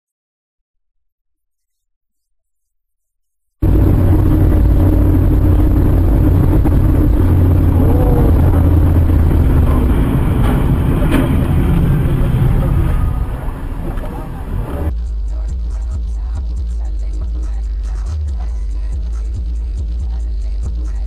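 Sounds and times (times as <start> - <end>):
car engine and road noise: 3.6 - 15.0.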